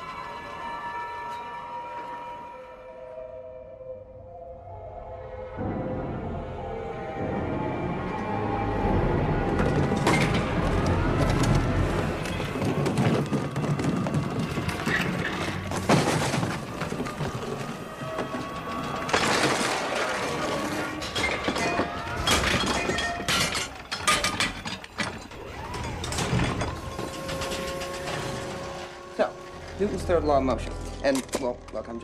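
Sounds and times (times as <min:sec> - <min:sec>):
breaking and shattering: 0:09.6 - 0:28.9.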